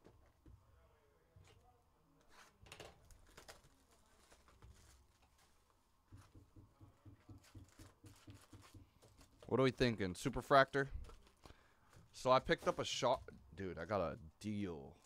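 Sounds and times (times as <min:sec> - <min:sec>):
cardboard boxes rustling: 0:03.2 - 0:05.7.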